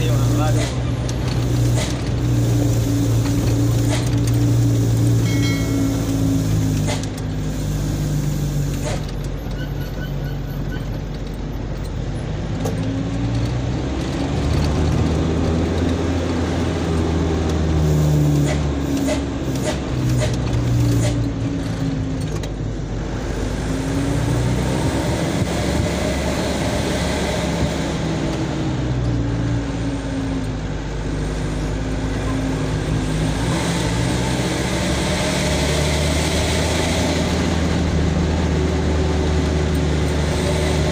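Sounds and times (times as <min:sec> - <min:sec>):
truck engine revving: 0:00.0 - 0:40.9.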